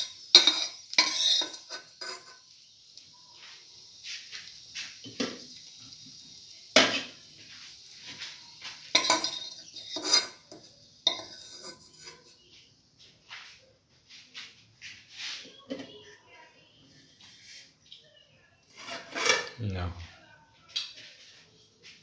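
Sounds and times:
metal skimmer scraping a pan: 0:00.0 - 0:02.4, 0:06.8 - 0:12.4, 0:18.7 - 0:19.6.

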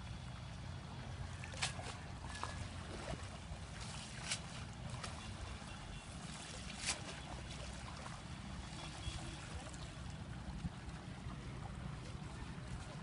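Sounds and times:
trickling water: 0:00.0 - 0:13.0
sharp splashes or knocks: 0:01.4 - 0:05.2, 0:06.4 - 0:07.4.

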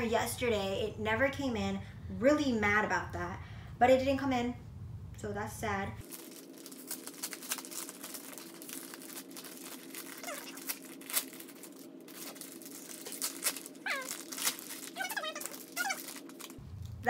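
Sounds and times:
steady low hum: 0:00.0 - 0:17.0
packaging crinkling and rustling: 0:06.0 - 0:17.0.

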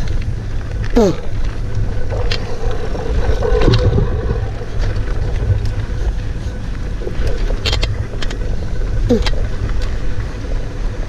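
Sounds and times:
bike hum: 0:00.0 - 0:11.0
wind buffeting microphone: 0:00.0 - 0:11.0
bike clicks and rattles: 0:04.8 - 0:10.0.

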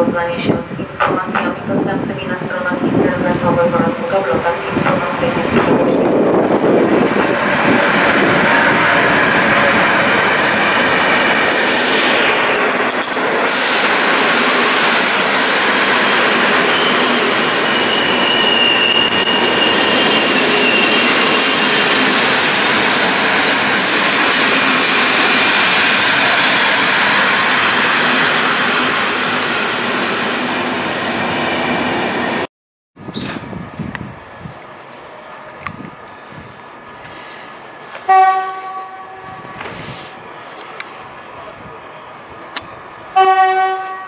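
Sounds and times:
train coaches rumbling past: 0:00.0 - 0:44.0
high wheel squeal: 0:15.9 - 0:22.6.

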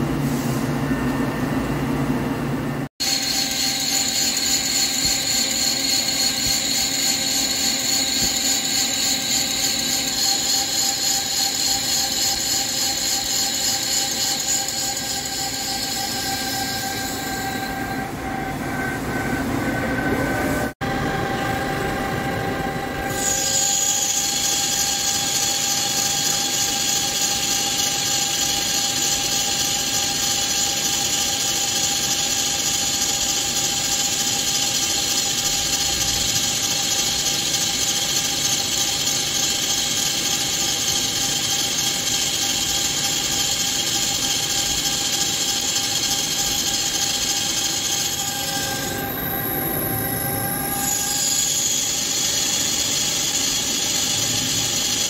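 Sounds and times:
machine running noise: 0:00.0 - 0:55.0
lathe cutting high-pitched whine: 0:03.0 - 0:55.0.

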